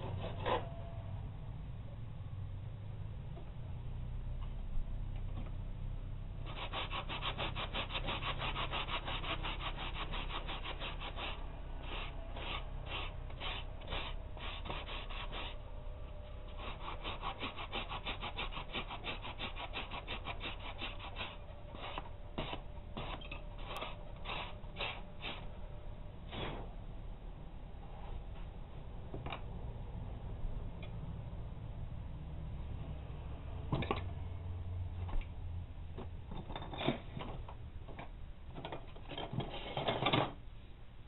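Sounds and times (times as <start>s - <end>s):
file rasping on steel: 6.4s - 15.7s, 16.3s - 25.5s.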